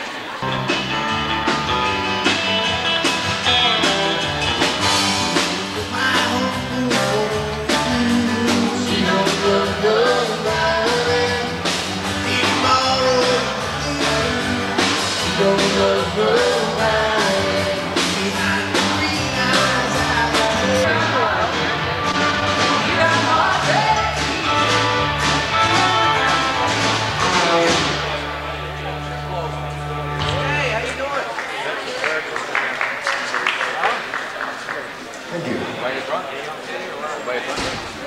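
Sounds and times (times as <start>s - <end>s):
rock and roll music with singing: 0.4s - 30.7s.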